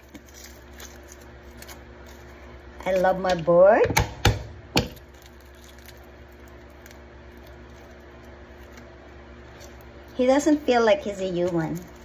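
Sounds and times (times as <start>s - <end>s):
garlic skins crinkling: 0.0s - 3.5s, 4.8s - 12.0s
steady low hum: 0.0s - 12.0s.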